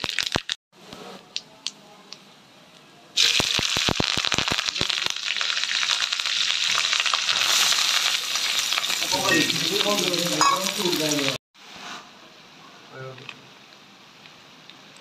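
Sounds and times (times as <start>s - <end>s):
hot oil sizzling and popping: 0.0s - 0.6s, 3.2s - 11.4s.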